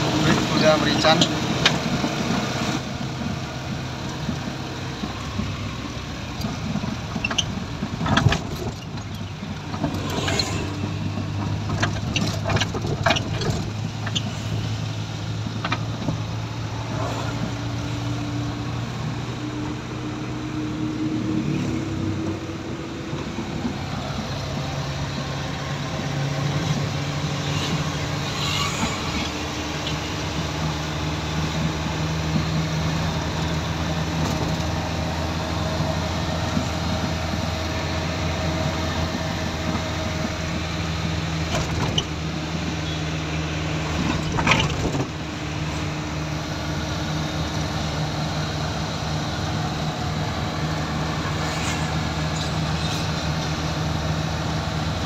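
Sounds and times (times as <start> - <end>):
car engine hum: 0.0 - 55.0
road noise: 0.0 - 55.0
sharp clicks and knocks: 6.3 - 14.5, 15.4 - 16.3.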